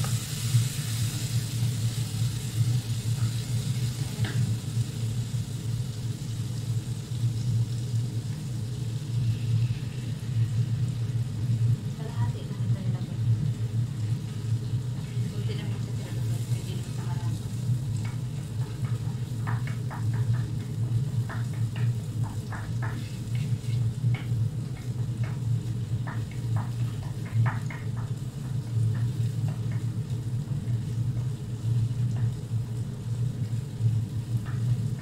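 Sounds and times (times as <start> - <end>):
sizzling crackles: 0.0 - 35.0
steady low hum: 0.0 - 35.0
wooden spoon scraping a pot: 23.0 - 23.9.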